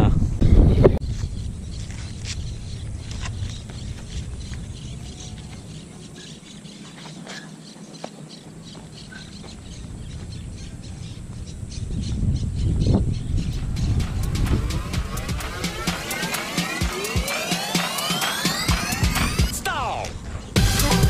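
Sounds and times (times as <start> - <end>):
wind rumble on microphone: 0.0 - 5.7, 9.5 - 15.0.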